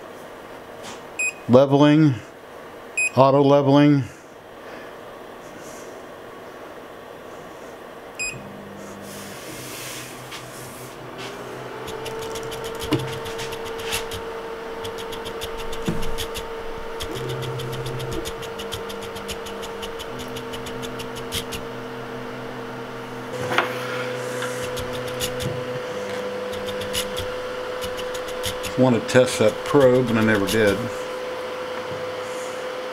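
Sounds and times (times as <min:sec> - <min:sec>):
steady motor whine: 0:08.1 - 0:32.9
stepper motors humming: 0:08.1 - 0:32.9.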